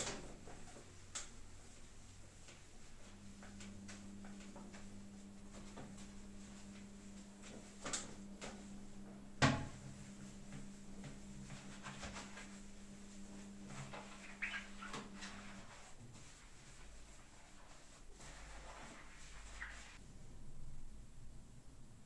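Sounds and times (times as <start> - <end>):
steady low hum: 0.0 - 22.0
sponge scrubbing toilet bowl: 9.7 - 20.0.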